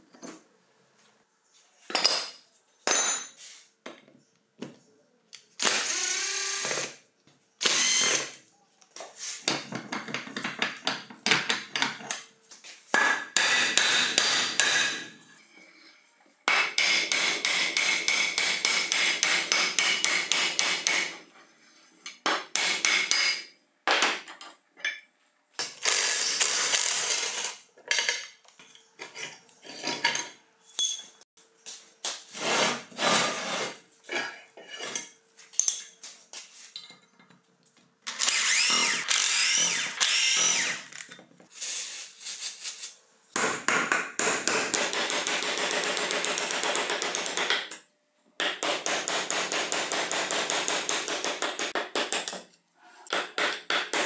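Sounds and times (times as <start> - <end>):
cordless drill running: 5.6 - 6.9, 7.6 - 8.3, 38.1 - 41.0.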